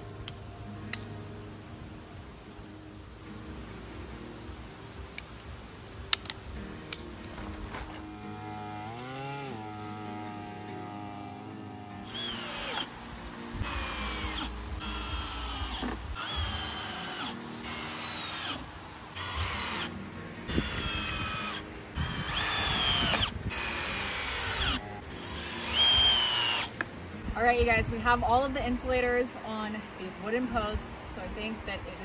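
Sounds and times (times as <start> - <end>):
cordless drill motor whine: 7.8 - 12.9, 13.6 - 18.6, 19.2 - 19.9, 20.5 - 26.8.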